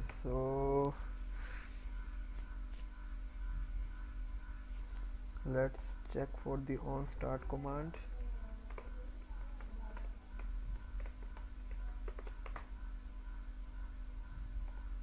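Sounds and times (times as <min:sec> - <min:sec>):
low hum: 0:00.0 - 0:12.0, 0:12.6 - 0:15.0
typing on computer keyboard: 0:08.6 - 0:12.7.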